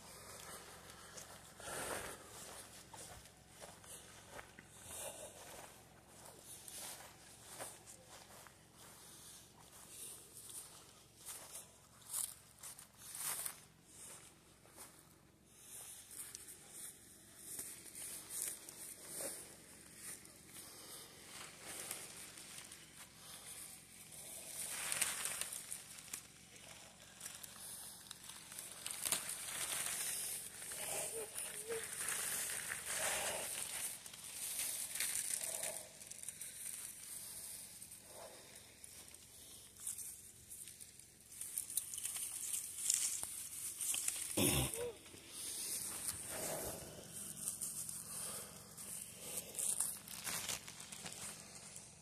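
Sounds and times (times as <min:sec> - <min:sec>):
evergreen boughs rustling: 0:00.0 - 0:52.0
plastic crinkling: 0:45.8 - 0:52.0.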